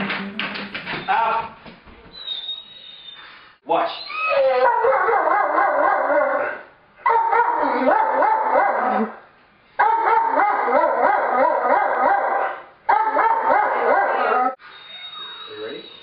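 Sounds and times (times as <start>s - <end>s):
dog howling: 4.0s - 9.2s, 9.8s - 16.0s.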